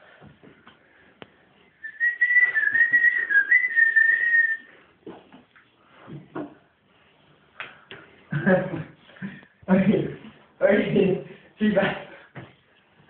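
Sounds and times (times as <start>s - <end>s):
high wavering whistle: 1.8s - 4.7s.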